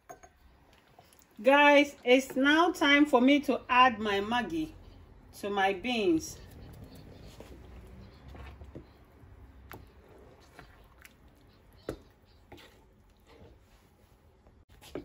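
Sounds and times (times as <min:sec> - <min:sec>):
spoon tapping pot: 0:00.0 - 0:00.4
wet squishing of thick sauce: 0:00.5 - 0:01.4, 0:06.4 - 0:15.0.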